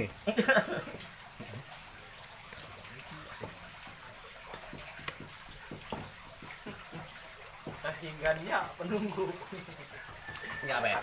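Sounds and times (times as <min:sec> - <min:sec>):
water pouring from hose into pot: 0:00.0 - 0:11.0
knife knocking on chopping block: 0:04.5 - 0:08.4.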